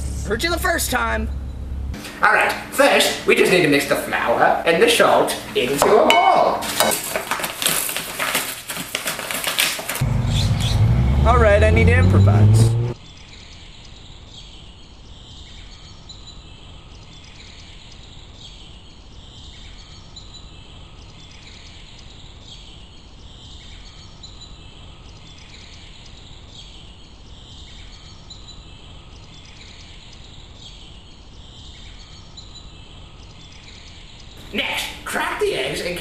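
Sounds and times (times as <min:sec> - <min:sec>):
low rumble: 0:00.0 - 0:02.0, 0:10.0 - 0:13.0
high chirping: 0:10.0 - 0:13.0.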